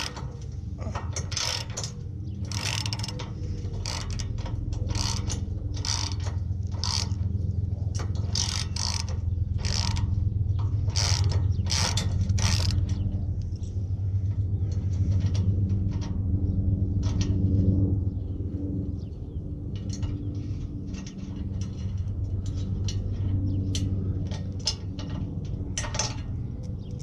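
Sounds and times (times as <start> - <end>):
ratchet wrench clicking: 0.0 - 0.2, 1.2 - 7.2, 8.0 - 10.2, 10.8 - 13.0
low hum: 0.0 - 27.0.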